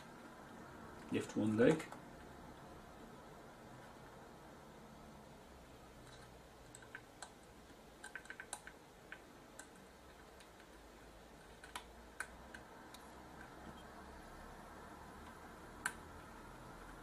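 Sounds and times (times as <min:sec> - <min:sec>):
small metallic clicks and ticks: 0:06.0 - 0:13.9.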